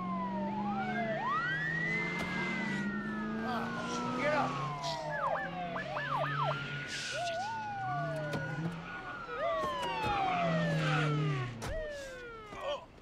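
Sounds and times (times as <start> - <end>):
police sirens wailing: 0.0 - 13.0.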